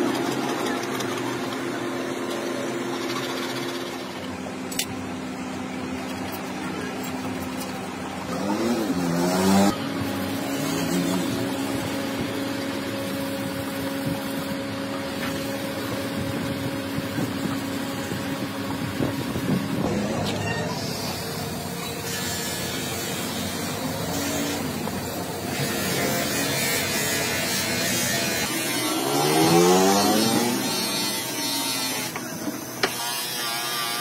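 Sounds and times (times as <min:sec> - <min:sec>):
steady mechanical hum: 0:00.0 - 0:34.0
engine revving: 0:08.2 - 0:12.2, 0:23.2 - 0:32.2.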